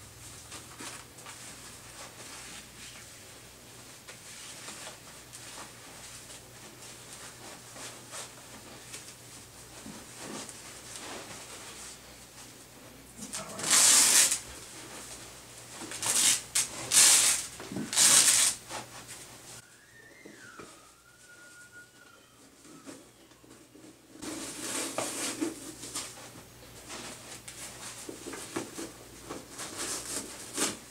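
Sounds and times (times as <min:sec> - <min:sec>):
quiet rustling and handling: 0:00.2 - 0:19.6, 0:21.5 - 0:30.9
straps tearing: 0:13.2 - 0:14.4, 0:15.9 - 0:18.6.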